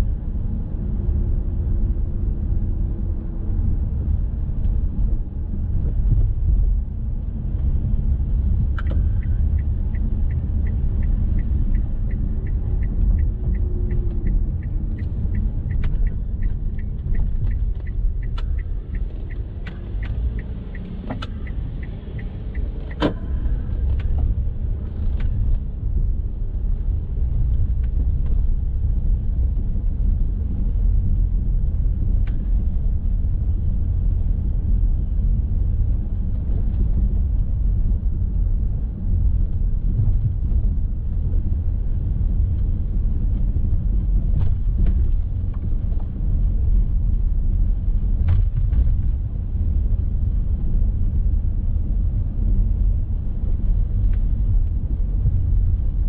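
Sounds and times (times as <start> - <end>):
car road and engine rumble: 0.0 - 56.0
light even ticks: 8.6 - 24.3.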